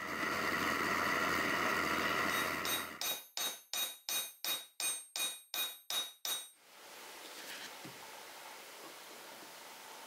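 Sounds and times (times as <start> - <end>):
hammer peening hot rivet: 2.6 - 6.5.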